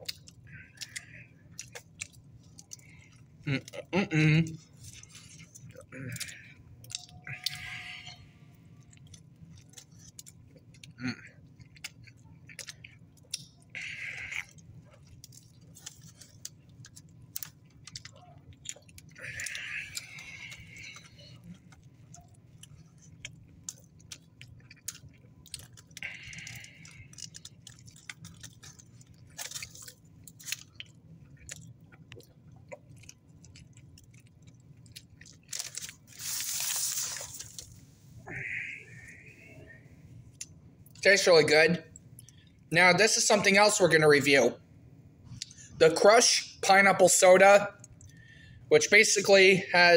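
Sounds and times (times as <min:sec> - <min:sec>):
chewing and biting food: 0:00.0 - 0:03.9, 0:04.6 - 0:37.8
paper wrapper rustling: 0:35.5 - 0:37.7.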